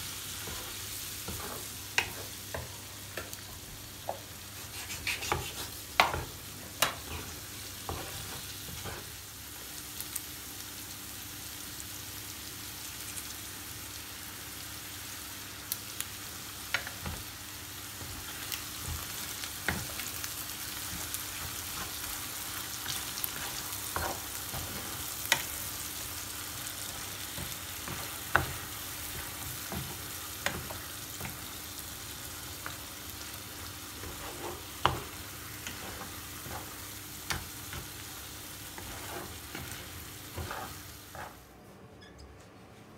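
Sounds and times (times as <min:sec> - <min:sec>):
food sizzling in a pan: 0:00.0 - 0:41.5
wooden spoon stirring: 0:40.3 - 0:41.4.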